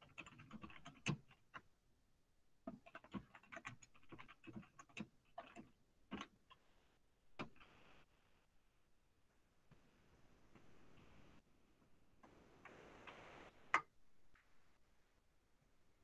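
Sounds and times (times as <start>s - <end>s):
keyboard typing: 0.0s - 1.7s, 2.7s - 6.6s.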